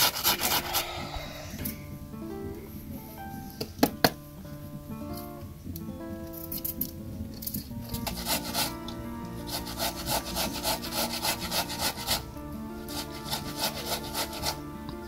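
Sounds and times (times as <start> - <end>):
vegetable rasping on metal grater: 0.0 - 1.0, 7.9 - 8.8, 9.4 - 12.2, 12.9 - 14.6
quiet background music: 0.0 - 15.0.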